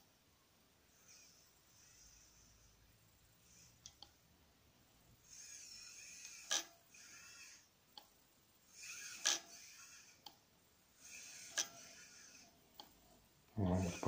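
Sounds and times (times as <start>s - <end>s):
small electric motor whining: 5.2s - 7.7s, 8.7s - 10.3s, 11.0s - 12.5s.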